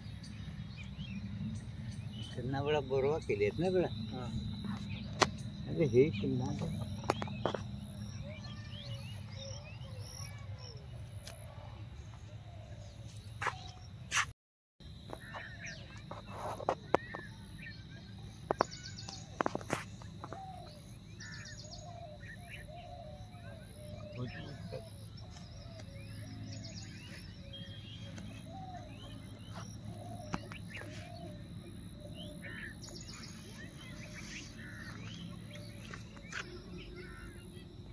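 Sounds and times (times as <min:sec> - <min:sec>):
steady low rumble: 0:00.0 - 0:02.6
birds chirping: 0:00.0 - 0:14.3, 0:14.9 - 0:37.9.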